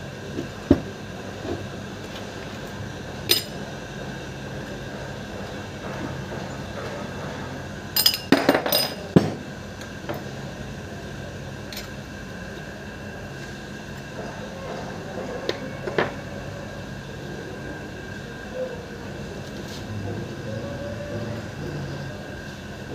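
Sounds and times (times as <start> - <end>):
steady background hum: 0.0 - 22.9
metal parts clinking: 3.3 - 3.5, 8.0 - 9.0.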